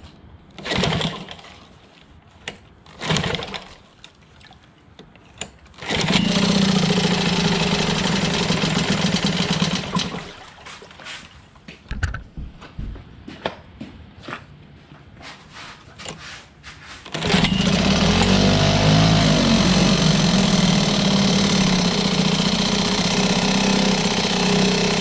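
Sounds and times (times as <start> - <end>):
recoil starter pulls: 0.6 - 1.5, 2.4 - 4.2, 5.3 - 10.3, 17.1 - 25.0
outboard motor running: 5.8 - 10.3, 17.2 - 25.0.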